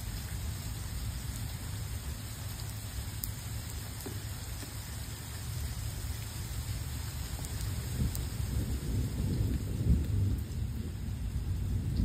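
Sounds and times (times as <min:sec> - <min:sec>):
steady rain: 0:00.0 - 0:12.0
faint drip tick: 0:01.3 - 0:06.4, 0:07.0 - 0:08.3.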